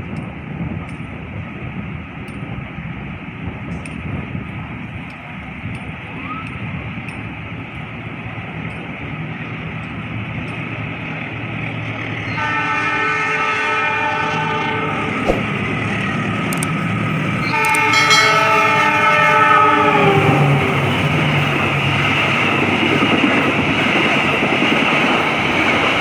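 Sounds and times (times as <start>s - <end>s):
train engine and wheels rumble: 0.0s - 26.0s
locomotive horn blasts: 12.3s - 15.1s, 17.4s - 20.6s.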